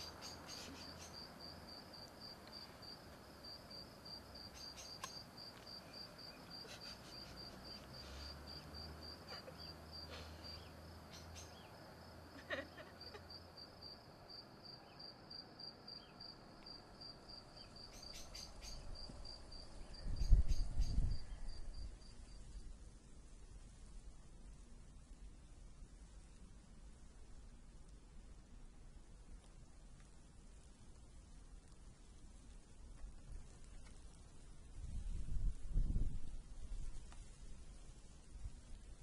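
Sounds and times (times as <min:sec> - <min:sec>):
cricket chirping: 0:00.0 - 0:22.8.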